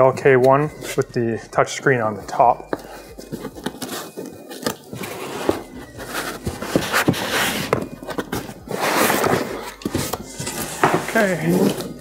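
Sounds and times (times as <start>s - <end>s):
foam and cardboard rustling: 2.7s - 12.0s.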